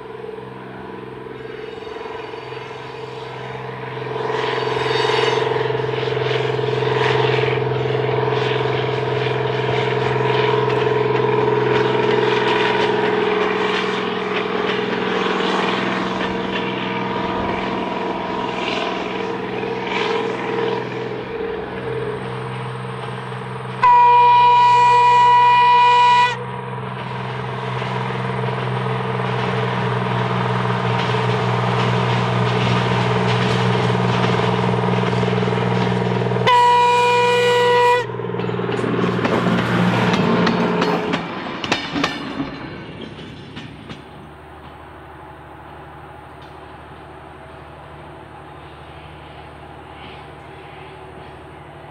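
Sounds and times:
rail motor engine running: 0.0s - 51.9s
wheels clicking over rail joints: 7.3s - 23.8s, 26.8s - 45.0s
train horn blasts: 23.8s - 26.7s, 36.4s - 38.3s.

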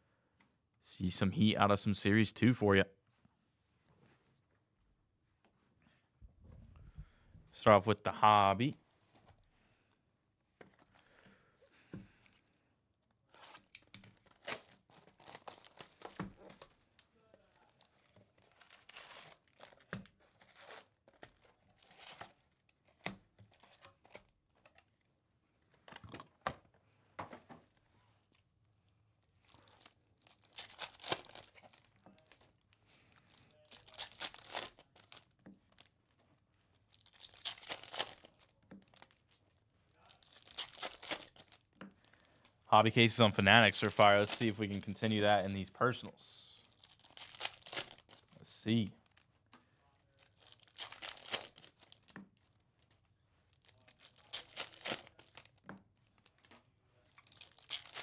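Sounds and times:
card pack wrappers tearing: 13.4s - 16.6s, 17.6s - 22.3s, 29.4s - 32.4s, 33.1s - 35.9s, 36.8s - 42.2s, 43.6s - 45.2s, 46.6s - 49.3s, 50.1s - 52.1s, 53.5s - 56.5s, 57.1s - 58.0s.

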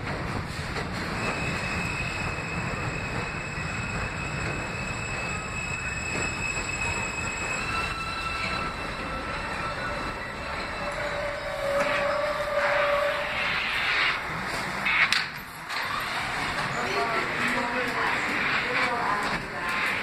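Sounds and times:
train wheels rumbling on rail: 0.0s - 20.0s
brake squeal: 1.2s - 14.2s.

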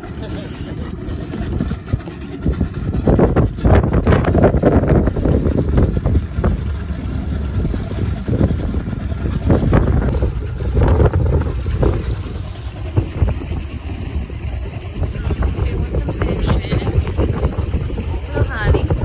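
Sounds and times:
boat rumbling: 0.0s - 19.0s
wind buffeting microphone: 0.0s - 19.0s.

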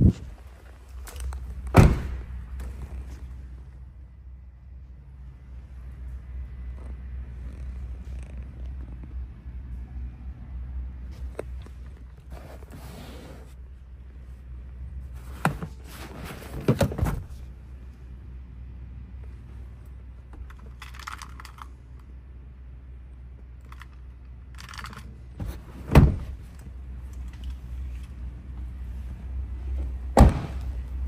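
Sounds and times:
steady low hum: 0.0s - 31.0s
clicks and rustles of handling: 20.4s - 22.1s, 23.6s - 25.1s
sharp heavy thumps: 30.2s - 30.7s.

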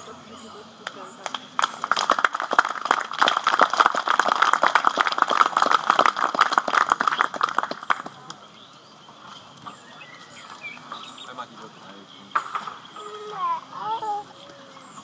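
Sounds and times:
audience applause: 1.2s - 8.3s.

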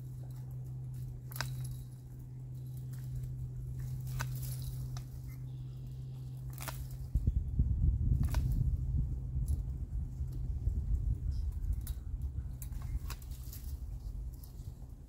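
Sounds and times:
loppers snipping brush stems: 0.0s - 7.3s, 8.0s - 8.8s, 11.4s - 14.8s
dry twigs rustling: 0.0s - 15.0s.

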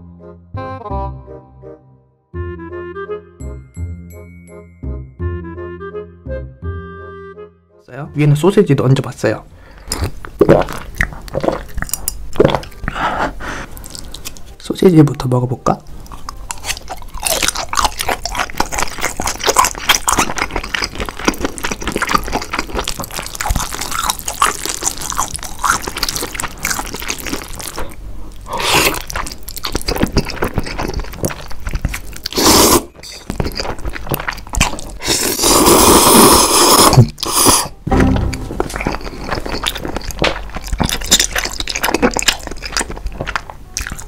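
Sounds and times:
man chewing with wet mouth sounds: 9.6s - 14.6s, 15.8s - 44.0s
slurping noodles: 25.8s - 37.8s.

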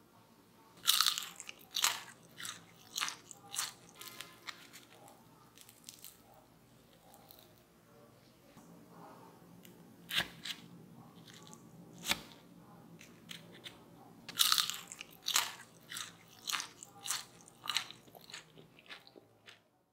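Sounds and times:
crunchy chewing: 0.8s - 7.6s, 10.1s - 12.4s, 13.0s - 19.7s.

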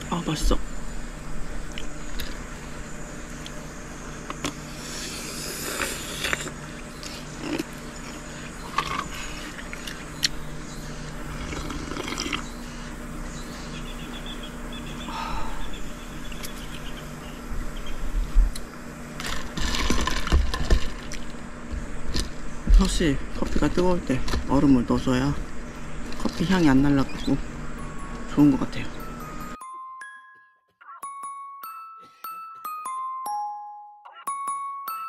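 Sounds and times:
steady low hum: 0.0s - 29.6s.

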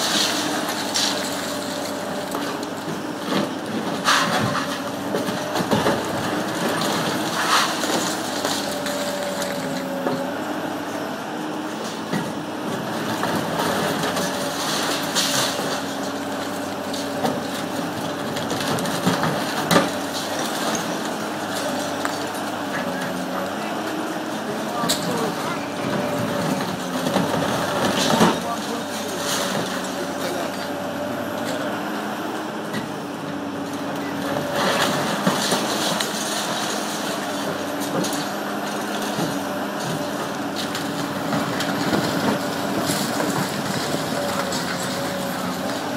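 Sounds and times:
excavator engine and hydraulics hum: 0.0s - 45.9s
falling debris: 3.4s - 9.8s, 34.5s - 45.9s.

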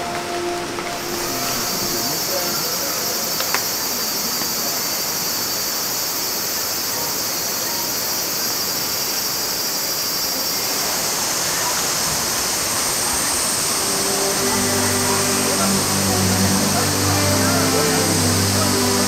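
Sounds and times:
heavy rain pouring: 0.0s - 5.5s, 10.5s - 19.0s.

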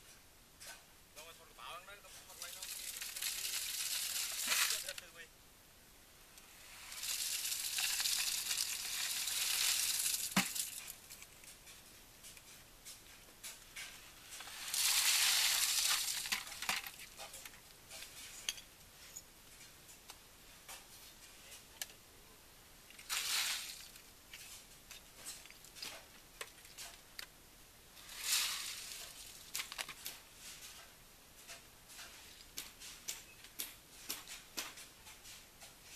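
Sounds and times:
stones clicking on rebar: 2.2s - 5.0s, 6.9s - 18.1s, 28.0s - 30.2s, 30.8s - 35.8s
wet concrete pouring: 2.2s - 5.0s, 6.5s - 11.0s, 14.3s - 17.4s, 23.0s - 24.0s, 28.0s - 29.8s.

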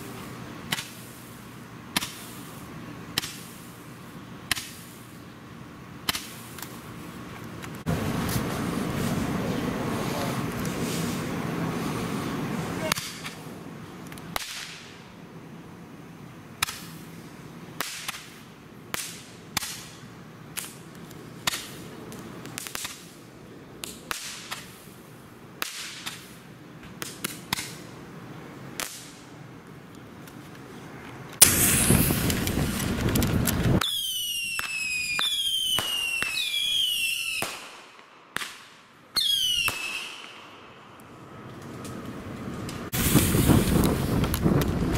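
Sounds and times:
firework rushing hiss: 0.0s - 5.3s, 7.8s - 13.6s, 21.4s - 27.9s, 31.4s - 42.0s, 42.6s - 44.9s
fireworks pops and bangs: 0.6s - 3.8s, 4.4s - 5.2s, 6.0s - 9.4s, 12.9s - 13.4s, 14.0s - 15.0s, 16.6s - 17.1s, 17.8s - 23.2s, 23.8s - 25.0s, 25.6s - 27.9s, 28.7s - 40.5s, 41.4s - 44.9s
falling firework whistles: 31.4s - 38.6s, 39.2s - 40.6s, 42.9s - 44.8s.

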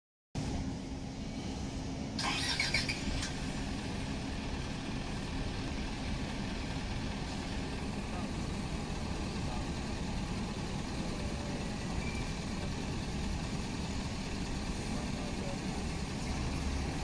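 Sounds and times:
diesel engine idling: 0.4s - 17.0s.

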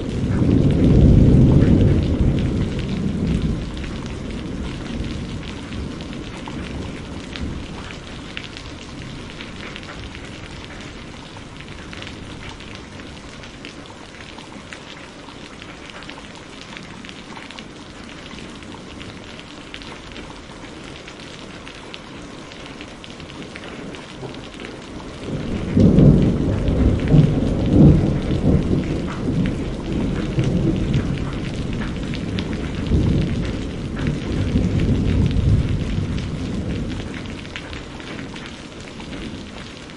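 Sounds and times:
low thunder rumble: 0.0s - 13.6s, 23.9s - 39.9s
steady rain: 0.0s - 39.9s.

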